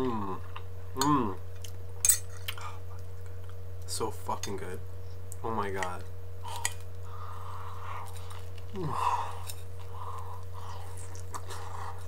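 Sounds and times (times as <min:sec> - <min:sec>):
low electrical hum: 0:00.0 - 0:12.0
man chewing: 0:06.4 - 0:12.0.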